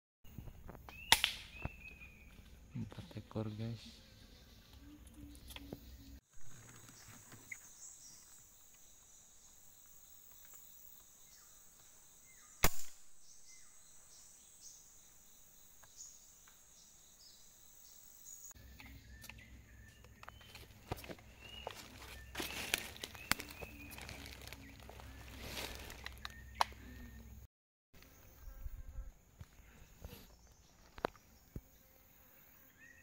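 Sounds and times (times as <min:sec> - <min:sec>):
insect hum: 0:00.3 - 0:33.0
air rifle shot: 0:12.6 - 0:13.1.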